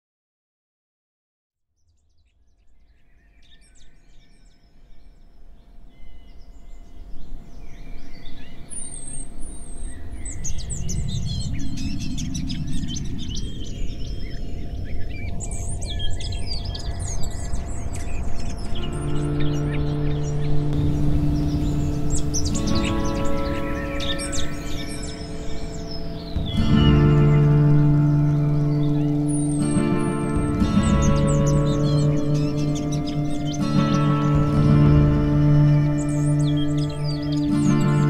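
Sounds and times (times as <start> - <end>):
birds chirping: 2.1 - 38.0
low rumble: 10.0 - 37.5.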